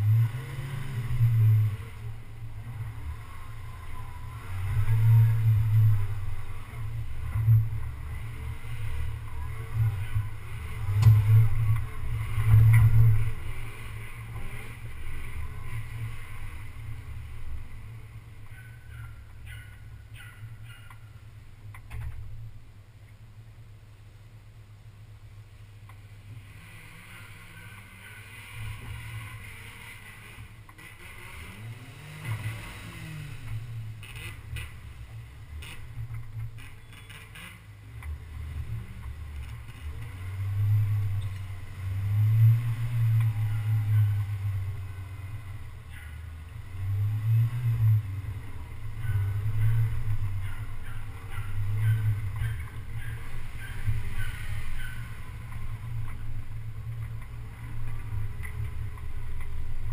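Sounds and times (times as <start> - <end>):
off-road vehicle rumbling: 0.0 - 59.9.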